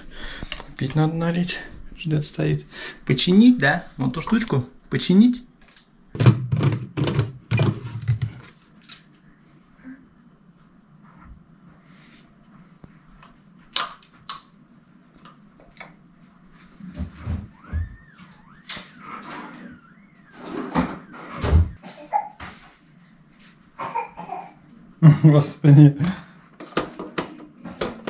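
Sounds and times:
household objects knocking and clicking: 0:06.2 - 0:08.3
wavering high squeal: 0:17.5 - 0:21.8.

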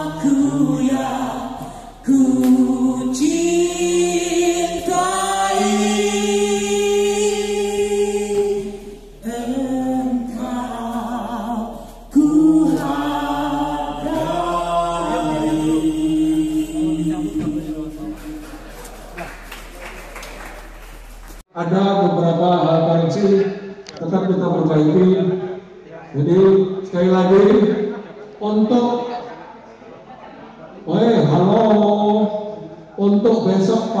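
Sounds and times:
choir singing long held notes: 0:00.0 - 0:21.3.

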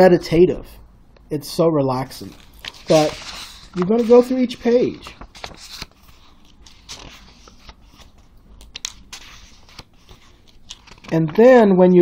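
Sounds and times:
book pages flipping: 0:02.2 - 0:11.5.

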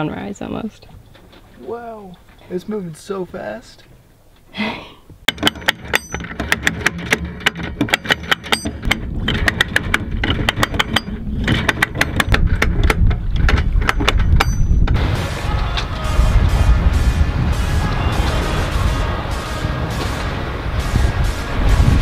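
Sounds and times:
anchor chain clattering: 0:05.3 - 0:14.9
low mechanical rumble: 0:14.7 - 0:22.0.

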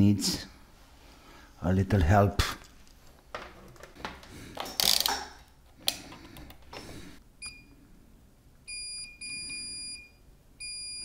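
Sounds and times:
multimeter beeping: 0:08.7 - 0:11.0.

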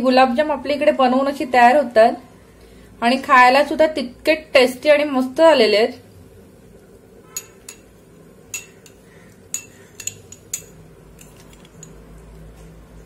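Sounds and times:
spoon clinking on glass bowl: 0:07.3 - 0:12.2.

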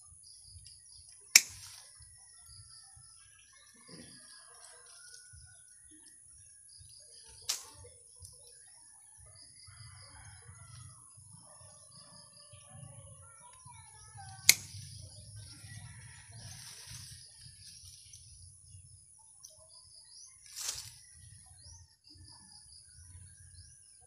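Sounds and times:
pruning shears snipping: 0:01.3 - 0:01.8, 0:07.4 - 0:07.8, 0:14.3 - 0:15.0.

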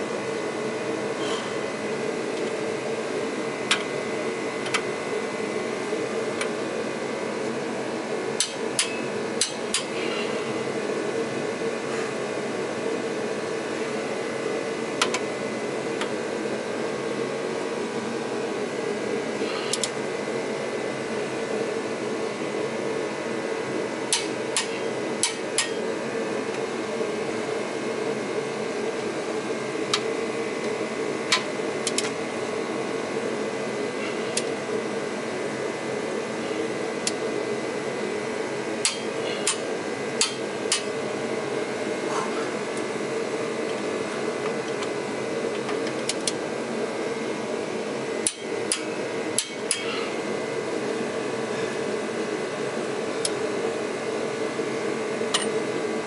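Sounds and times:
heater blower roaring: 0:00.0 - 0:56.0.

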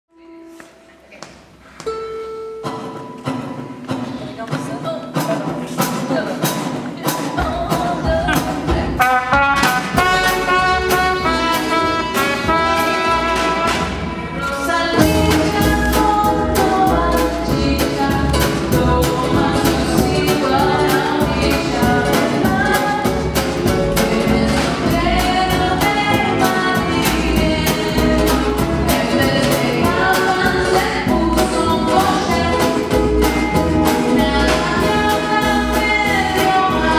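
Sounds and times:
acoustic guitar: 0:00.1 - 0:36.9
percussion keeping a beat: 0:02.6 - 0:36.9
upright double bass: 0:07.4 - 0:36.9.

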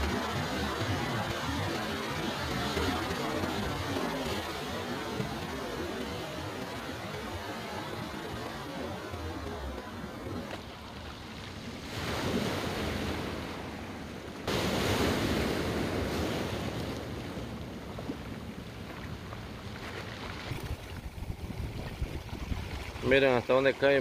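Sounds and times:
surf breaking on rocky shore: 0:00.0 - 0:17.8
wind buffeting microphone: 0:20.3 - 0:23.4.

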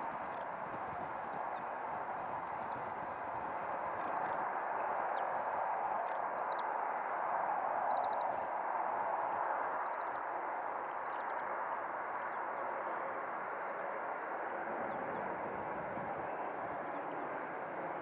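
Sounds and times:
jet engines running: 0:00.0 - 0:18.0
faint bird chirps: 0:06.0 - 0:06.7, 0:07.9 - 0:08.3.

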